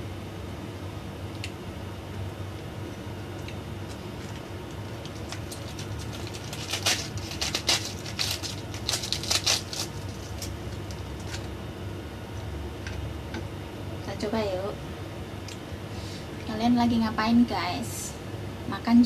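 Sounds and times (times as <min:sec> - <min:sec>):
cabbage leaves tearing: 0:03.9 - 0:11.5.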